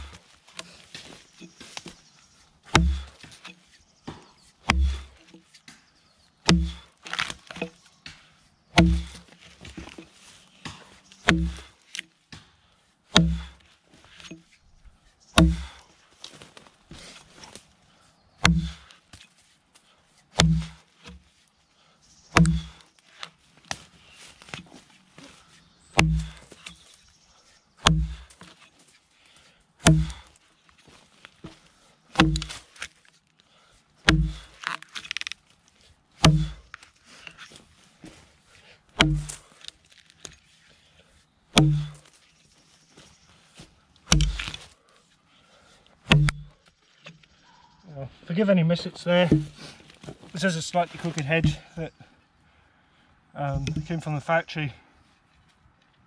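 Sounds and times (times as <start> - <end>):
axe chopping log: 2.7 - 5.5, 6.4 - 7.8, 8.7 - 12.5, 13.1 - 13.6, 15.4 - 15.8, 18.4 - 18.9, 20.3 - 21.3, 22.3 - 22.8, 26.0 - 26.9, 27.8 - 28.7, 29.8 - 30.3, 31.4 - 32.9, 34.0 - 35.3, 36.2 - 36.8, 39.0 - 39.5, 41.5 - 42.1, 44.0 - 44.7, 46.0 - 47.2, 49.2 - 49.7, 51.0 - 51.7.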